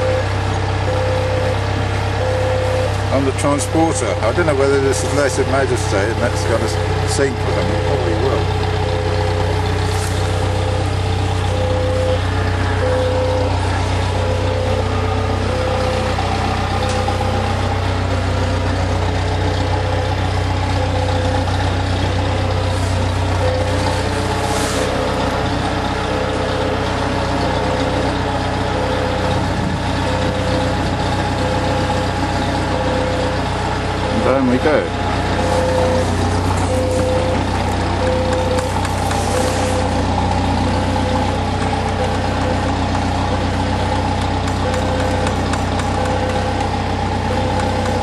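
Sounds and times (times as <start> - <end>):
diesel engine humming: 0.0 - 48.0
warning beeper: 0.0 - 48.0.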